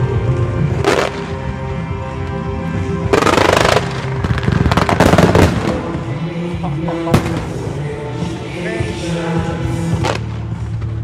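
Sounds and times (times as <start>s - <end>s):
background music with sustained tones: 0.0s - 11.0s
fireworks crackling: 0.8s - 1.4s, 3.0s - 7.8s.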